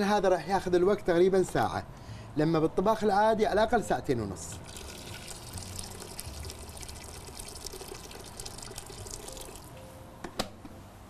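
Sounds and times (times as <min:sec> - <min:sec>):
water pouring into pot: 0:04.6 - 0:09.8.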